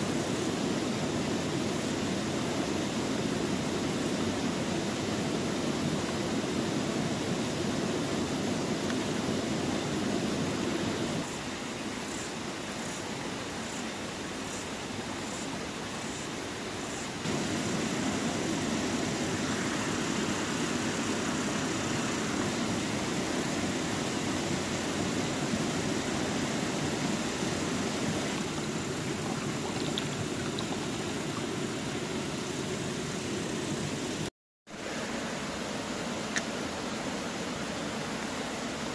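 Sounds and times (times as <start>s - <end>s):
steady rushing noise: 16.9s - 34.3s.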